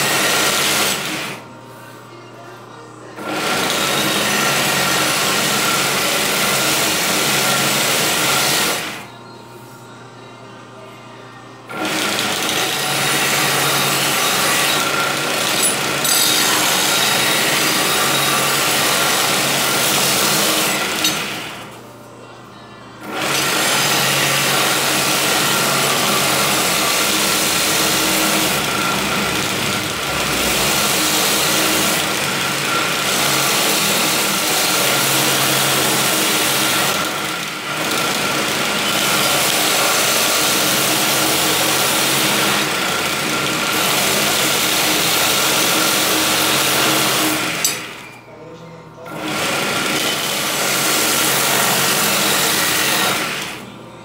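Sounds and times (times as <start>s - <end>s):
blade grinding on abrasive belt: 12.0s - 21.7s, 23.2s - 48.0s
belt sander motor running: 23.1s - 47.9s.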